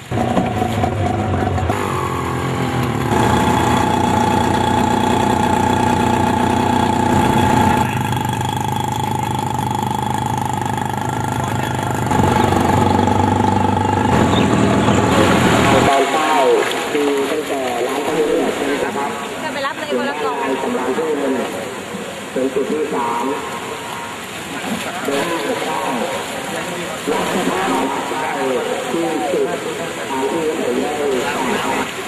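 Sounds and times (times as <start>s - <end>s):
motor engine humming: 0.0s - 26.4s.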